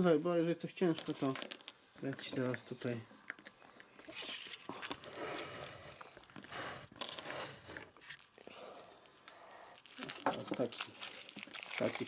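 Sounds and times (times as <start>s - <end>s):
foil wrapper crinkling: 4.0s - 12.0s.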